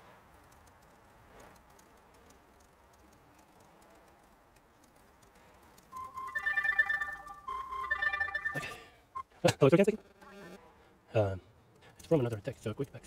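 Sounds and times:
typing on laptop keyboard: 0.3 - 8.4
phone ringtone: 5.9 - 9.0.

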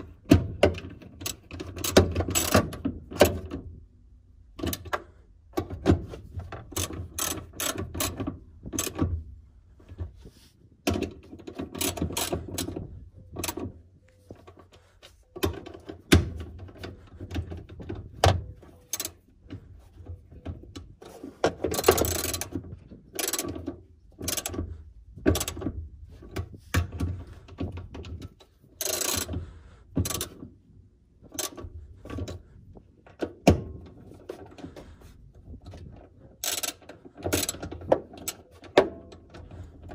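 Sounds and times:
ratchet wrench clicking: 6.8 - 8.2, 18.9 - 19.2, 21.7 - 22.5, 23.2 - 24.6, 28.8 - 29.4, 31.4 - 31.6, 36.4 - 38.4
metal parts knocking: 10.8 - 13.8.

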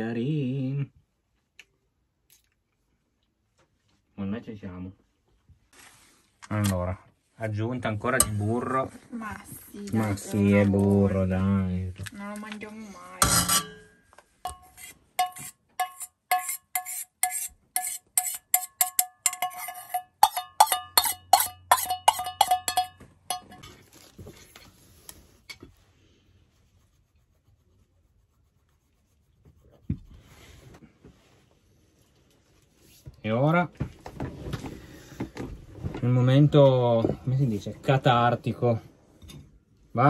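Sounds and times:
metal utensil clinking on pan: 8.2 - 8.6, 13.2 - 23.7.

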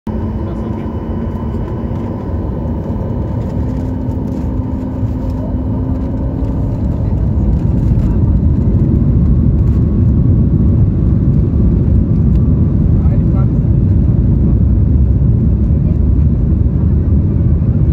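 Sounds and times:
jet engines and airframe rumble: 0.1 - 17.9.

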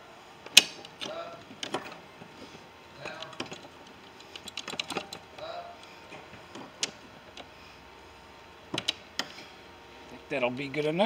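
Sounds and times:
hand tools clicking on metal: 3.0 - 5.5.

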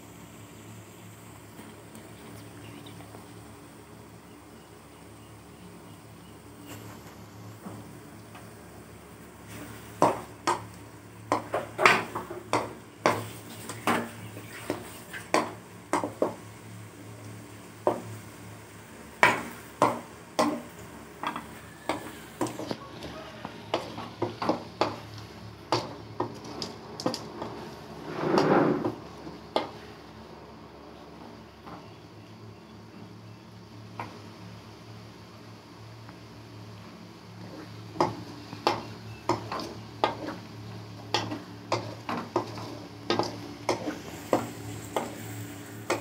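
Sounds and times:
spatula scraping pot: 27.4 - 29.0.

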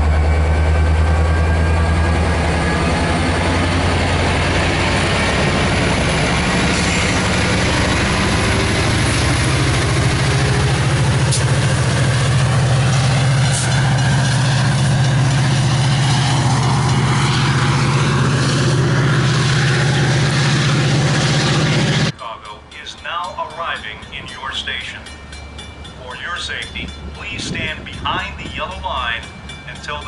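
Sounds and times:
diesel locomotive engine droning: 0.0 - 30.0.

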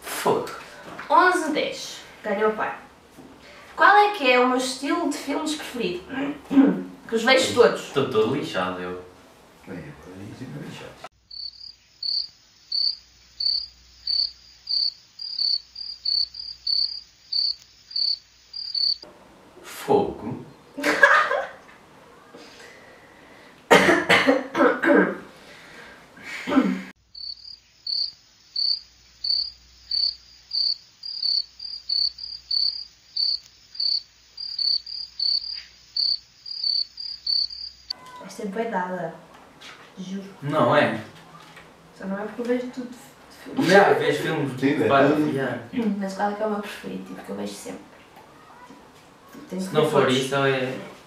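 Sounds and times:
cricket chirping sound effect: 11.2 - 19.1, 27.1 - 38.0.

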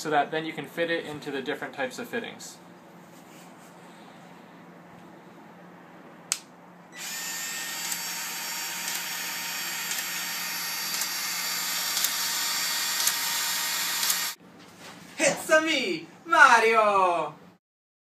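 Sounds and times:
sharp click: 6.3 - 6.5, 9.9 - 10.1
tool motor running: 7.0 - 14.4.

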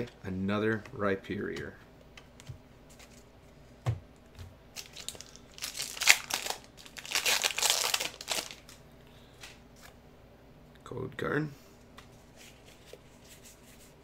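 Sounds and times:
foil wrapper crinkling and tearing: 4.8 - 8.8.

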